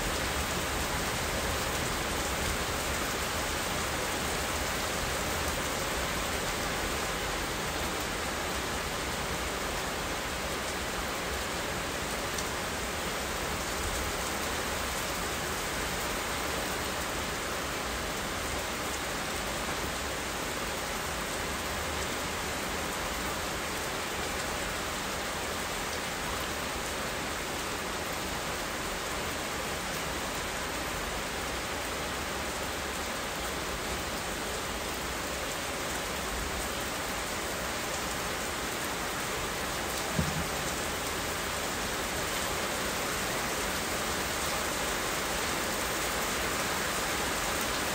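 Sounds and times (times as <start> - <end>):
steady rain falling: 0.0 - 47.9
low knock: 40.1 - 40.7.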